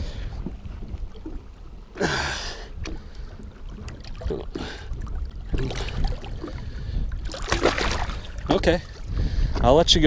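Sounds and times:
water splashing against boat: 0:00.0 - 0:10.0.

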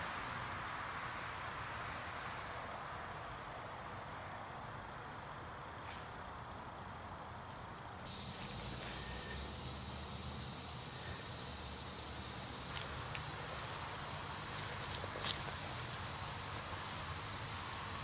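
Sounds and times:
fog machine hissing: 0:08.1 - 0:18.0.

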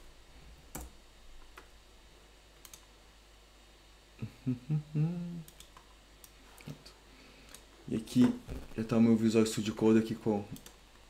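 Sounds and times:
faint low hum: 0:00.0 - 0:11.0
sharp computer clicks: 0:02.6 - 0:02.9, 0:05.4 - 0:06.8, 0:10.5 - 0:10.8.

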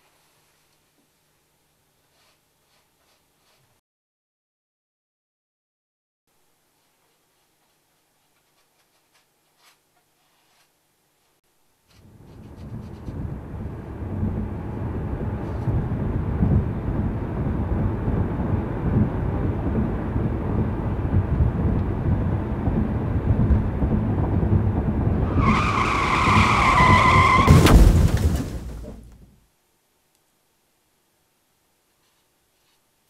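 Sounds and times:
car engine rumbling: 0:12.1 - 0:29.4
tyre screech: 0:25.3 - 0:27.8
sharp bang: 0:27.4 - 0:29.1.

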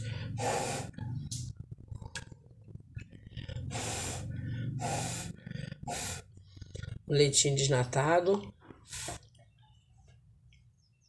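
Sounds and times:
woman breathing heavily: 0:00.0 - 0:01.0, 0:03.2 - 0:07.0
chewing clicks: 0:01.2 - 0:03.7, 0:05.4 - 0:07.0.

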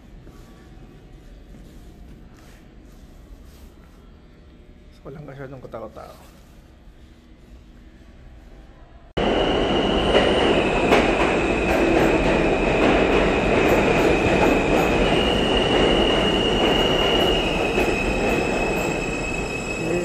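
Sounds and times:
train wheels rumbling on rail: 0:09.2 - 0:20.0
high wheel squeal: 0:14.1 - 0:20.0.

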